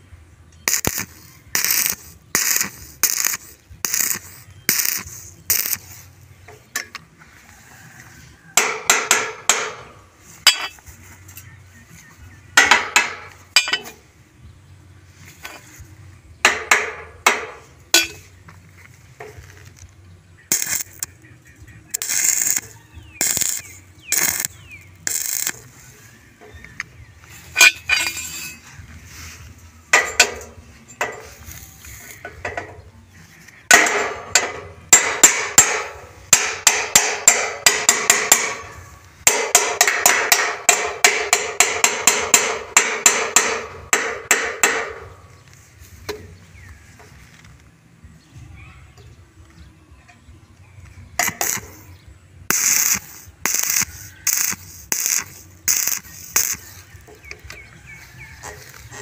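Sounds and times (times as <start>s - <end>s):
hammer clanking on steel tubing: 8.6s - 11.5s, 12.6s - 14.0s, 16.4s - 18.3s, 27.5s - 28.6s, 29.9s - 31.4s, 33.7s - 45.2s
short hissing bursts: 52.5s - 57.0s.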